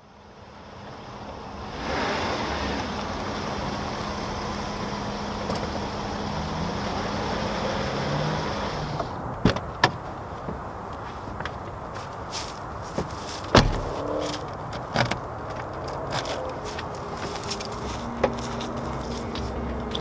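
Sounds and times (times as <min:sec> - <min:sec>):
car engine running: 0:00.5 - 0:09.4, 0:13.0 - 0:20.0
car door clicks: 0:13.0 - 0:16.3.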